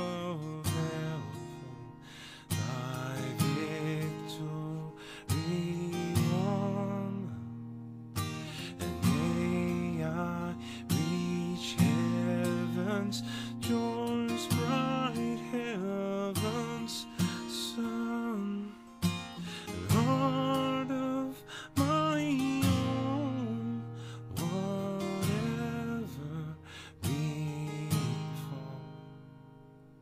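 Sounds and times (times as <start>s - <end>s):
man singing hymn: 0.0s - 7.4s, 8.5s - 18.8s, 19.5s - 29.0s
acoustic guitar strummed chords: 0.0s - 30.0s.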